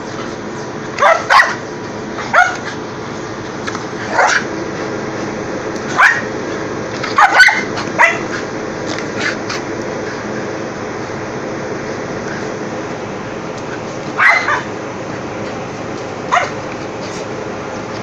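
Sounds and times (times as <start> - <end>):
dogs barking: 0.9 - 2.8, 4.0 - 4.5, 5.8 - 6.4, 7.0 - 8.5, 14.1 - 14.8, 16.2 - 16.7.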